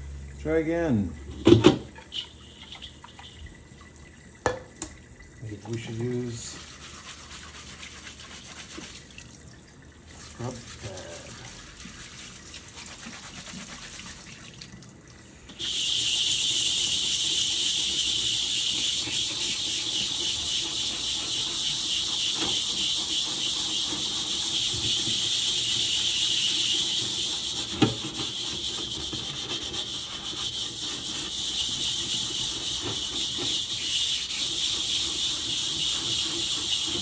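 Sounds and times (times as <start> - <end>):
scrub pad scouring a wok: 5.8 - 9.1, 10.2 - 14.3, 15.6 - 37.0.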